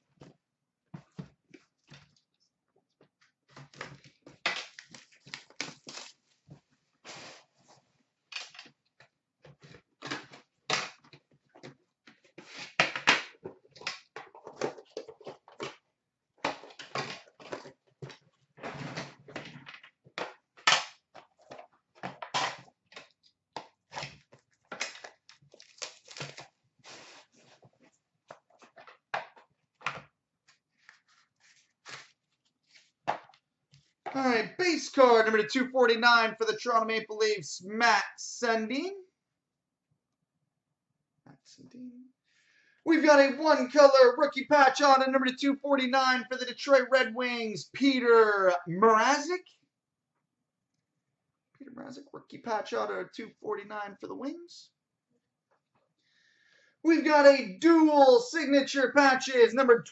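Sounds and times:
wrapping crinkling: 0:04.7 - 0:06.5, 0:24.4 - 0:27.6.

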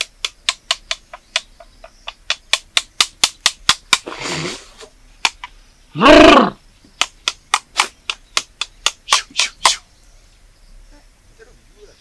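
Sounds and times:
rhythmic sharp claps: 0:00.0 - 0:04.1, 0:07.0 - 0:09.8
hoarse vocal cry: 0:05.9 - 0:06.6.

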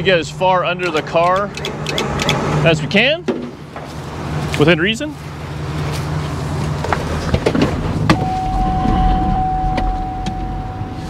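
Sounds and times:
winch motor whine: 0:08.1 - 0:11.0.

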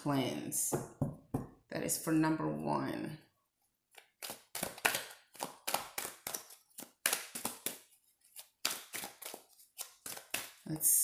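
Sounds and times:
cards being shuffled: 0:03.9 - 0:10.7.

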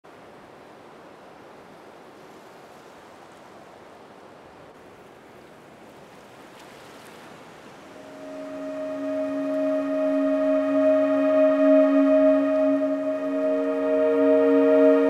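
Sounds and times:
ocean surf washing: 0:04.8 - 0:15.0
sustained synth chords: 0:08.0 - 0:15.0.

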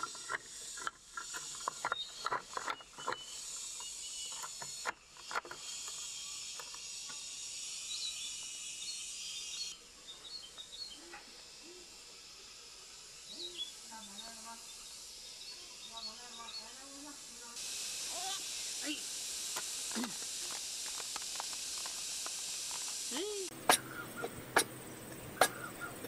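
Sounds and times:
wooden stool pieces clacking: 0:00.0 - 0:03.3
faint insect chirps: 0:00.0 - 0:26.0
high insect drone: 0:00.0 - 0:26.0.

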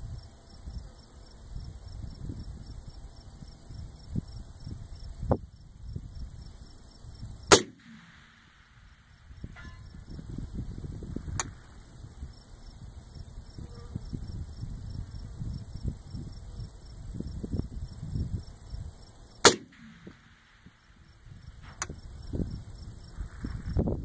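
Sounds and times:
wind buffeting microphone: 0:01.5 - 0:07.5, 0:08.9 - 0:19.0, 0:19.7 - 0:24.0
sharp click: 0:07.5 - 0:08.4, 0:11.3 - 0:11.6, 0:21.6 - 0:22.0
rifle shot with echo: 0:07.5 - 0:09.7, 0:19.4 - 0:21.0
metallic ring of steel target: 0:09.4 - 0:10.0, 0:19.5 - 0:20.7.

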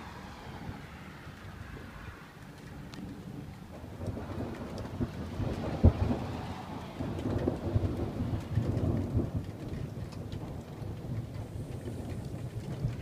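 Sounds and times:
steady rain: 0:00.0 - 0:13.0
thunder rumbling: 0:00.0 - 0:13.0
loud thunder crack: 0:03.9 - 0:13.0.

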